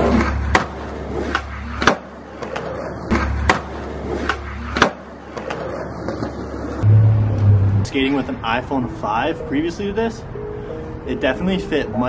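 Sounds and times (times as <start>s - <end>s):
skateboard deck slapping down: 0.0s - 6.6s
skateboard tail popping: 0.0s - 6.8s
skateboard wheels rolling on concrete: 0.0s - 7.4s.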